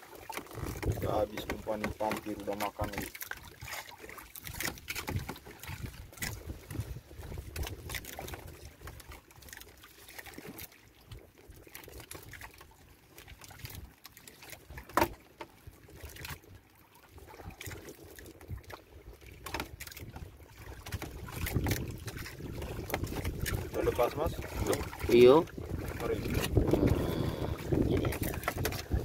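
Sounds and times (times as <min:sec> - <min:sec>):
water sloshing against boat hull: 0:00.0 - 0:29.0
light knocks on hull: 0:14.8 - 0:15.5, 0:22.8 - 0:23.6.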